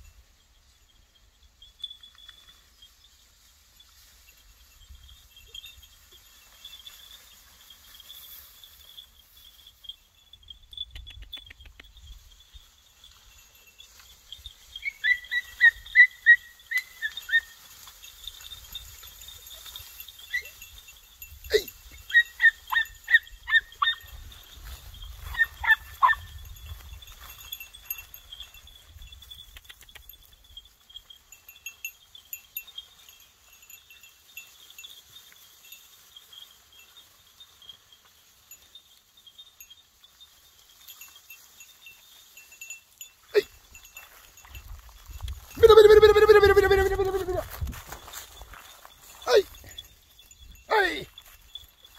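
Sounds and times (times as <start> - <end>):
insect chirring: 0.0 - 51.9
puppies yelping: 14.8 - 17.8, 22.0 - 24.1, 25.3 - 26.3, 45.6 - 47.5.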